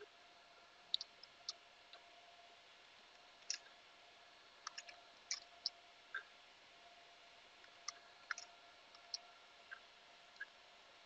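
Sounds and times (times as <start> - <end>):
faint steady hum: 0.0 - 11.0
keyboard and mouse clicks: 3.4 - 3.7, 4.7 - 5.7, 7.8 - 9.2.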